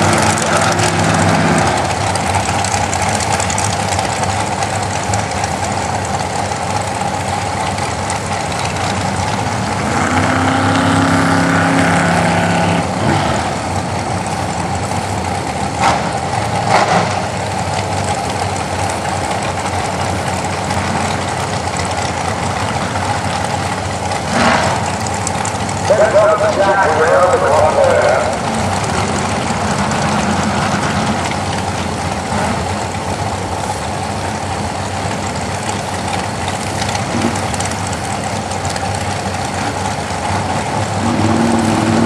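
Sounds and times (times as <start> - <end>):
dragster engines rumbling: 0.0 - 42.0
engine revving higher: 9.8 - 13.6, 41.0 - 42.0.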